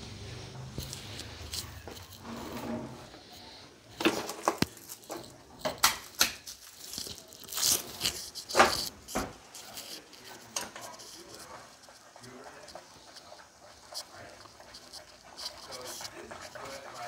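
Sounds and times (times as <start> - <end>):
plastic wrapping crinkling: 4.0 - 10.3.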